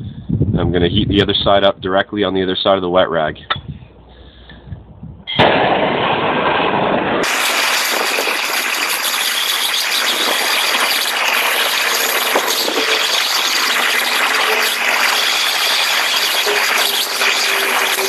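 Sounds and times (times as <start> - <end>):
torch flame hissing: 7.1 - 18.0.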